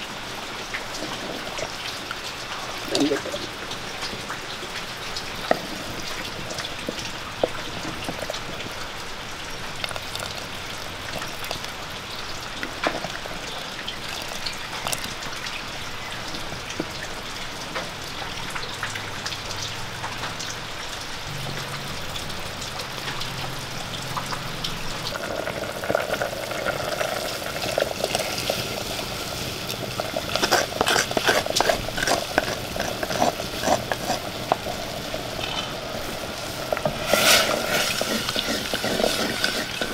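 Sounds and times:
shallots sizzling in a pot: 0.0s - 20.4s, 21.6s - 39.9s
wooden spoon stirring: 5.2s - 8.8s, 9.6s - 11.8s, 14.0s - 15.2s, 29.7s - 39.9s.

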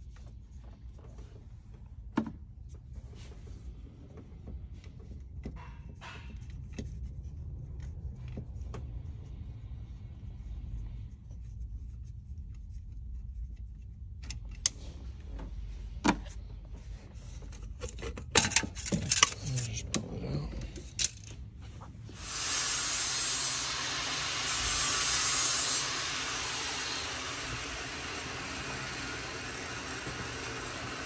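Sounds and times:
low steady rumble: 0.0s - 22.4s.

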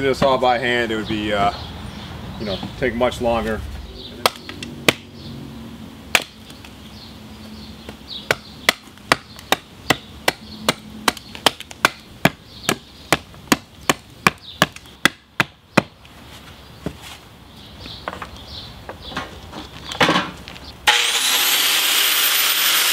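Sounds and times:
axe chopping wood: 4.2s - 5.1s, 6.1s - 6.4s, 7.9s - 16.0s.

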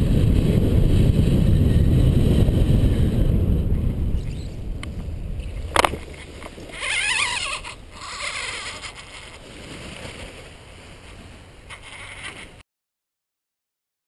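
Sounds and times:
wind rushing on microphone: 0.0s - 10.4s.

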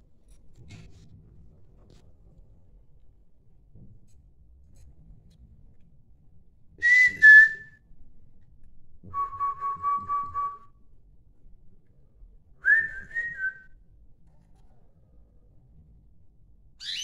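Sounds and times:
person whistling: 6.8s - 7.8s, 9.1s - 10.7s, 12.6s - 13.7s.

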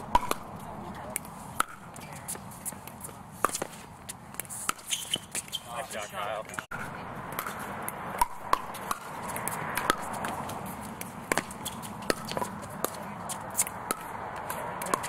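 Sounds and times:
ball bouncing on hard court: 0.0s - 5.7s, 6.5s - 15.0s
paddles striking plastic ball: 0.1s - 0.5s
shoes scuffing on court: 1.2s - 6.7s, 8.6s - 15.0s.

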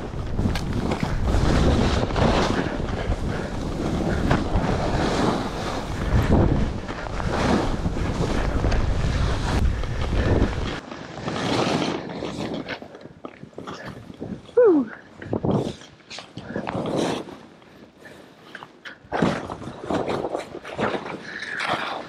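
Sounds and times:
wind rushing over microphone: 0.0s - 10.8s
skis running through powder snow: 0.0s - 14.5s.

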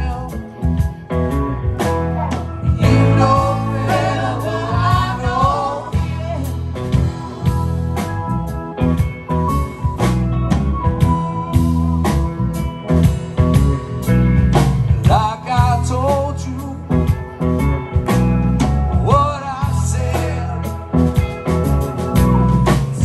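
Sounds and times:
live rock band playing: 0.0s - 23.0s.

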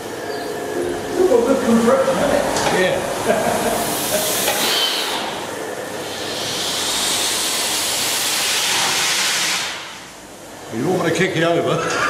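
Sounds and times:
pumping engine rushing hiss: 0.8s - 10.3s.

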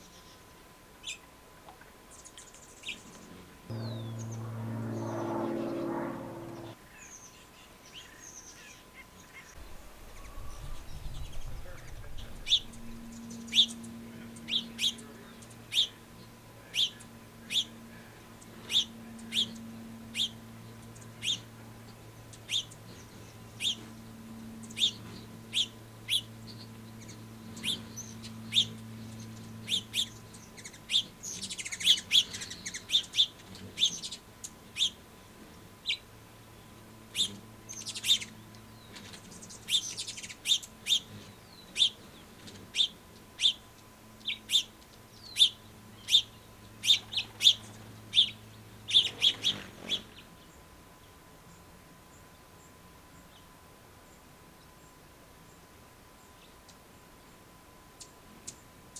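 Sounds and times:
faint low hum: 0.0s - 58.9s
finches chirping: 11.2s - 50.1s.

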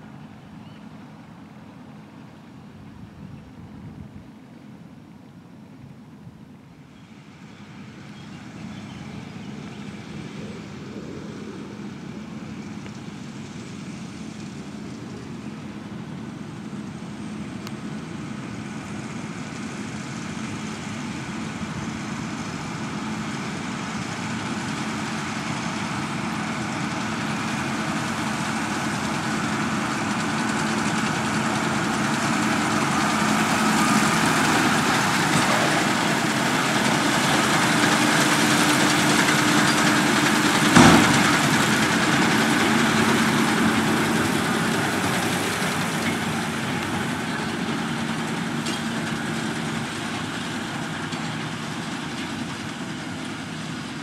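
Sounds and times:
tractor engine running: 6.8s - 54.0s
baler working: 12.0s - 54.0s
machinery clunk: 39.6s - 45.4s.

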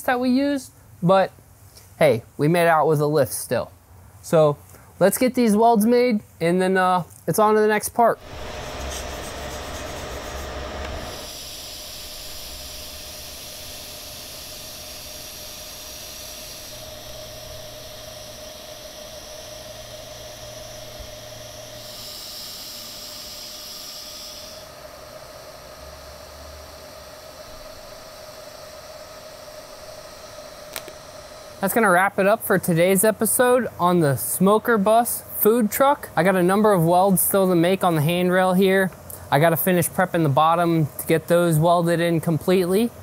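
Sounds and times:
faint steady whine: 0.0s - 43.0s
welding arc hissing: 8.1s - 33.6s.

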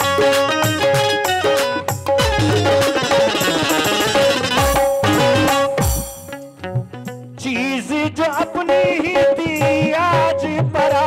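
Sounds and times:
tabla strokes: 0.0s - 7.0s
harmonium: 0.0s - 11.0s
man singing: 7.3s - 11.0s.

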